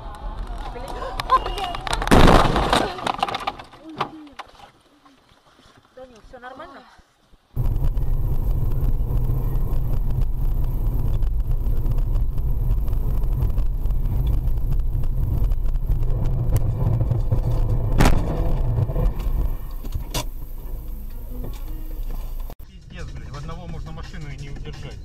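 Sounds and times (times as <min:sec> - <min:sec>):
car collision bang: 0:02.1 - 0:03.0, 0:16.3 - 0:20.5
car engine and tyres rumbling: 0:07.6 - 0:24.7.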